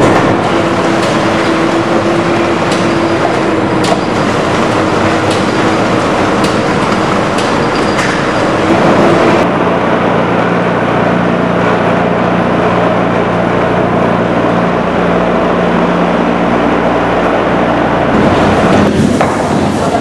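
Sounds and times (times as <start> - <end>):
machinery clicks: 0.0 - 9.4
machinery humming: 0.0 - 20.0.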